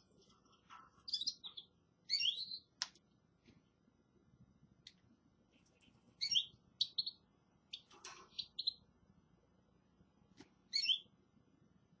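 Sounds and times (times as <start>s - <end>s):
finches chirping: 1.0s - 2.7s, 6.2s - 8.8s, 10.7s - 11.1s.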